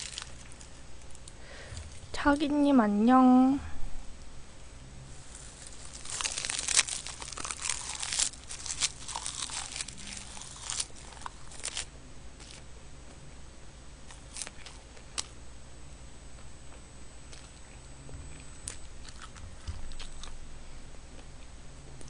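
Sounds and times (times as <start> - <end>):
plastic bag and seaweed crinkling: 0.0 - 2.0, 5.2 - 12.6.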